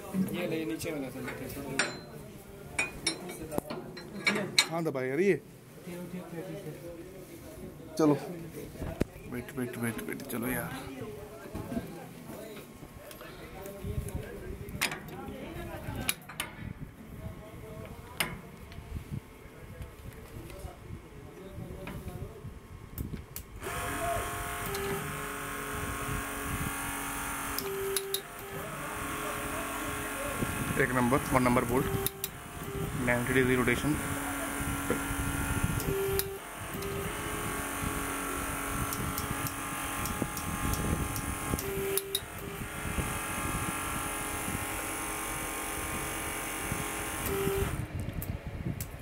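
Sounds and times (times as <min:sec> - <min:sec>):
hydraulic pump humming: 0:23.4 - 0:48.0
clicks: 0:27.5 - 0:28.5, 0:31.8 - 0:32.8, 0:35.8 - 0:37.2, 0:38.8 - 0:42.5.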